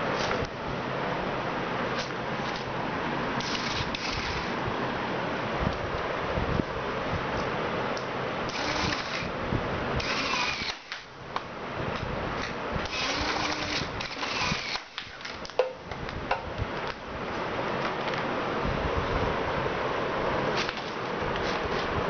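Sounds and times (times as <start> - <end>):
small motor whirring: 3.4 - 4.6, 8.5 - 9.3, 10.0 - 11.0, 12.8 - 15.1.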